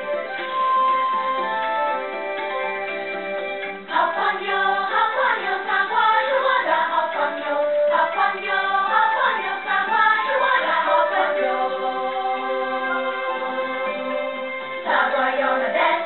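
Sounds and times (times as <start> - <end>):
instrumental theme music: 0.0 - 16.0
choir singing: 3.8 - 16.0.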